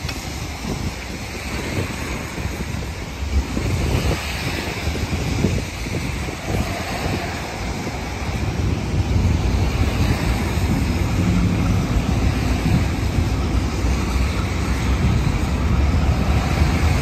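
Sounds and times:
diesel locomotive engine rumble: 0.0 - 17.0
wind noise on microphone: 0.0 - 17.0.

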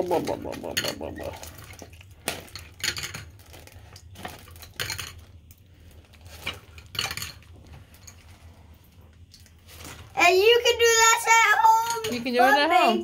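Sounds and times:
wooden pencils clinking: 0.0 - 1.7.

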